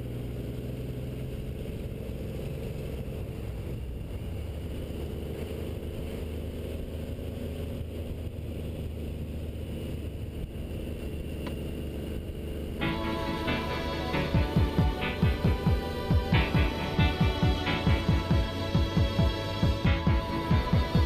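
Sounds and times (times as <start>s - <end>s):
motorcycle engine running: 0.0s - 21.0s
wind and road rush: 0.0s - 21.0s.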